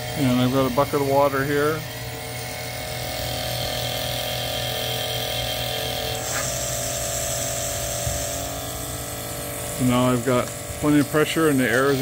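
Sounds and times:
pump humming: 0:00.0 - 0:12.0.

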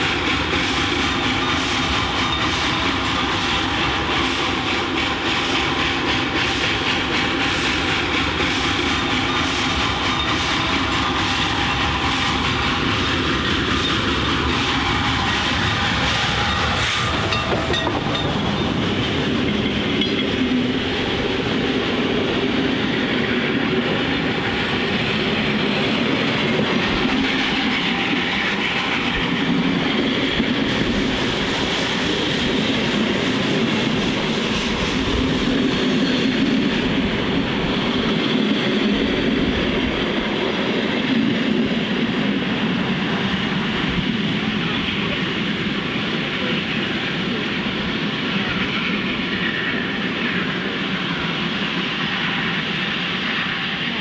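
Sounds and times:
escaping steam: 0:00.0 - 0:54.0
train wheels rolling on rails: 0:00.0 - 0:54.0.

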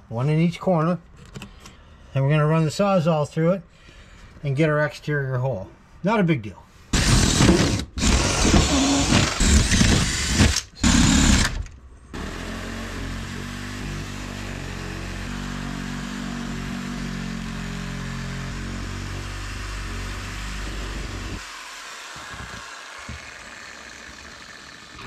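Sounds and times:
reciprocating saw cutting: 0:06.9 - 0:25.0.

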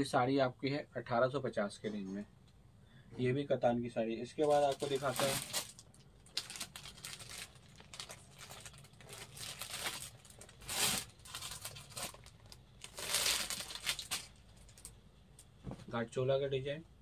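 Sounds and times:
fabric rustling and crinkling: 0:04.4 - 0:14.9.

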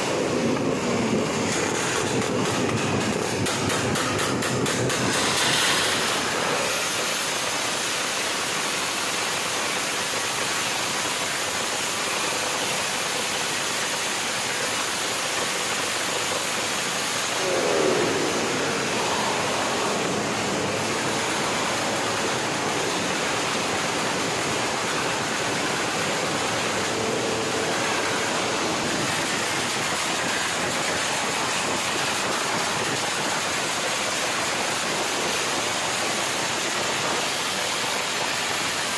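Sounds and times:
loud motorcycle engine rushing: 0:00.0 - 0:07.0, 0:17.2 - 0:30.5.

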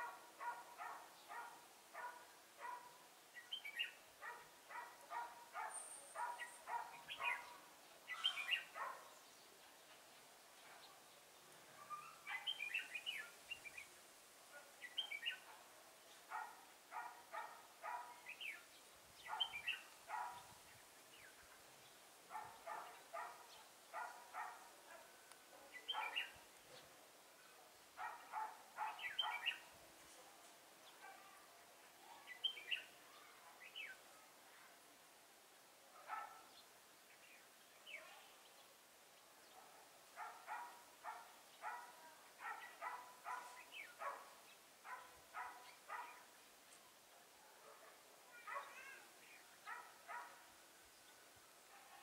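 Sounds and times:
bulbuls singing: 0:00.0 - 0:09.3, 0:12.0 - 0:13.9, 0:16.1 - 0:24.6, 0:25.7 - 0:26.9, 0:28.0 - 0:29.7.

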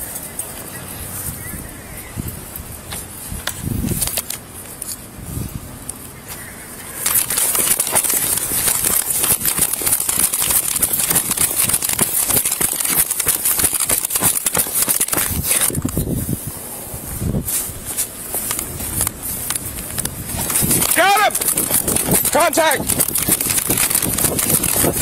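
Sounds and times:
camera rubbing against clothing: 0:07.0 - 0:16.5, 0:17.1 - 0:25.0.

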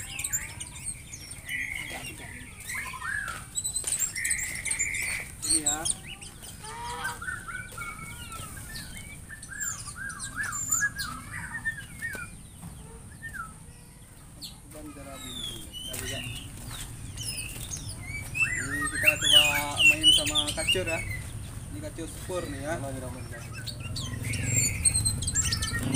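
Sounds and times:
quick repeated bird chirps: 0:00.0 - 0:13.5, 0:23.4 - 0:25.9
birds chirping: 0:00.0 - 0:25.9.

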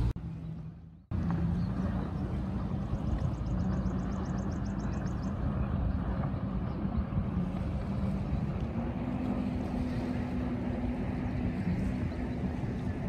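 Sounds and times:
motorboat engine droning: 0:00.0 - 0:13.0.

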